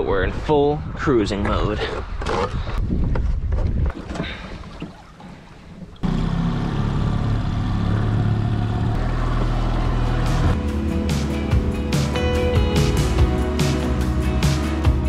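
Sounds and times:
propeller churning water: 3.8 - 15.0
outboard motor running: 5.7 - 15.0.

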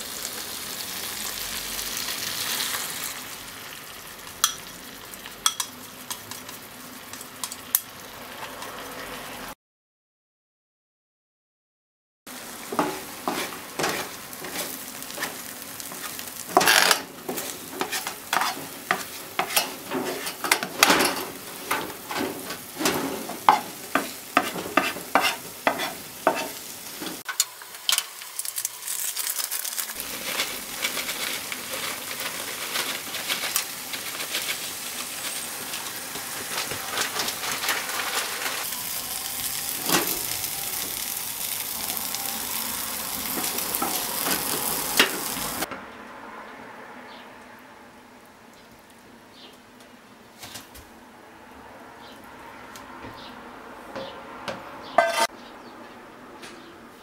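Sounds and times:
omelet sizzling in a frying pan: 0.0 - 9.5, 12.3 - 45.7
spatula scraping a pan: 12.6 - 27.4, 30.0 - 38.6, 55.0 - 55.3
spatula knocking: 12.7 - 27.2, 54.0 - 55.3.

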